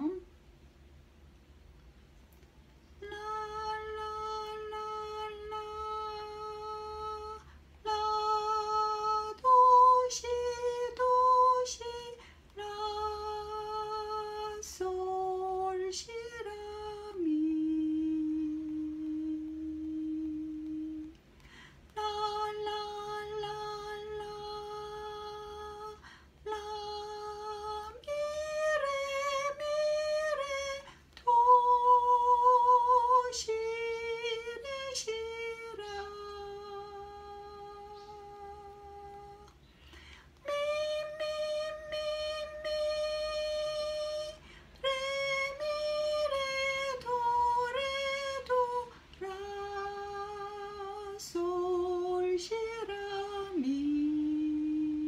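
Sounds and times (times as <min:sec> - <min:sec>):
woman humming: 0:00.0 - 0:00.3.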